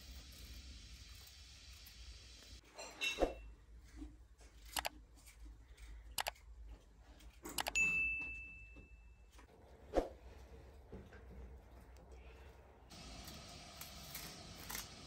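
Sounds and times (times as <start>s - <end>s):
sharp mouse clicks: 4.7s - 4.9s, 6.2s - 6.4s, 7.6s - 7.8s
bell ding: 7.8s - 9.3s.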